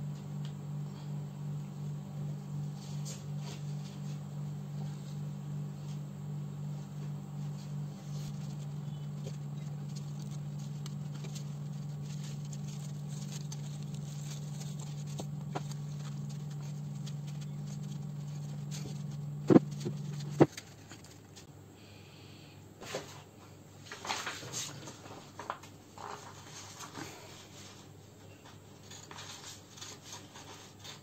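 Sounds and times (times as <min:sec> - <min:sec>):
steady low hum: 0:00.0 - 0:31.0
paper rustling and tapping: 0:08.2 - 0:21.4.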